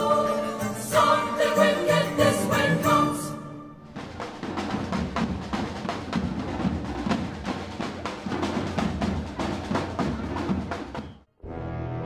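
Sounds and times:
street drum band playing: 3.9 - 11.3.

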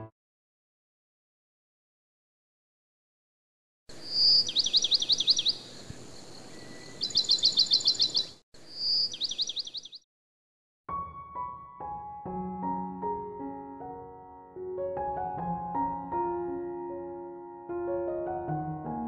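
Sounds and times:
faint outdoor hiss: 3.9 - 9.9
songbird singing: 3.9 - 10.0
soft piano music: 10.9 - 19.0.

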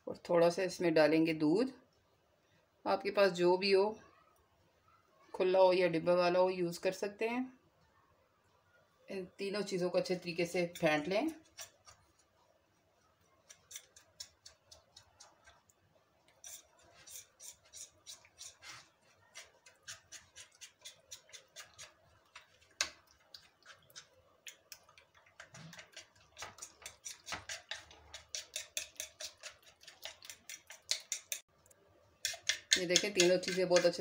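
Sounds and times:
fork beating batter in bowl: 10.2 - 31.5, 32.2 - 34.0.

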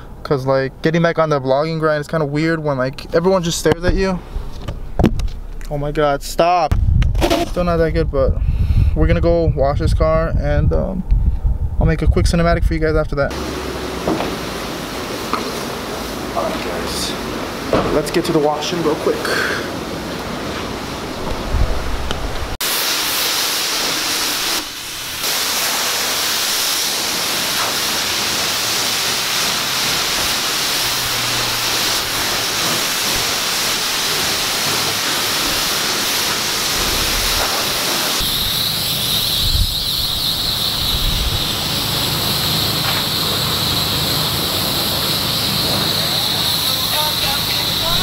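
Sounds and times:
pressure washer spraying water: 13.3 - 21.3, 22.3 - 48.0.

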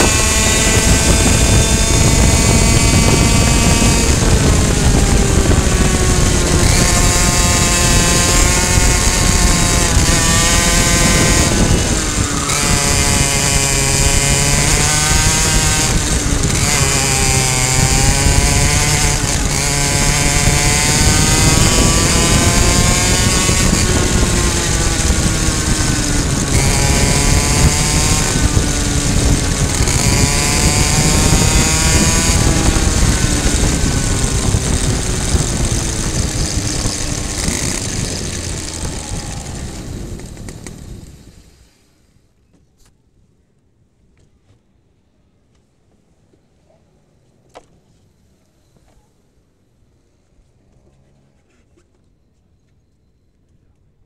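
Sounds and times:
two-stroke kart engine revving: 0.0 - 41.8.

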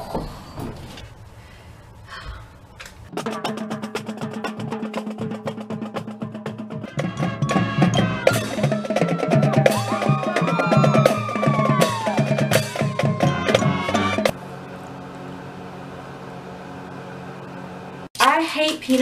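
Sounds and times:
marching band playing: 3.1 - 14.4
marching drumline: 3.1 - 14.4.

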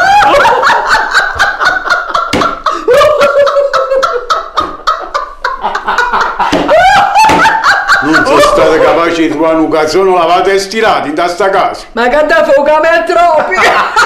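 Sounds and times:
woman laughing: 0.0 - 9.1, 13.4 - 14.0
man laughing: 0.0 - 9.4, 13.4 - 14.0.

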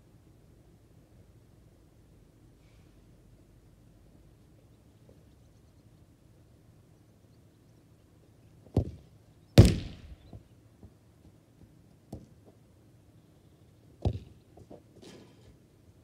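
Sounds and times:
football kicked with a thud: 8.8 - 9.0, 9.6 - 10.4, 14.0 - 14.3.

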